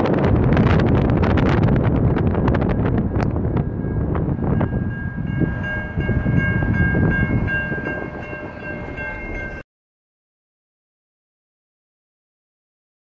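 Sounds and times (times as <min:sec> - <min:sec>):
wind rumble on microphone: 0:00.0 - 0:09.6
level crossing warning bell: 0:02.4 - 0:09.6.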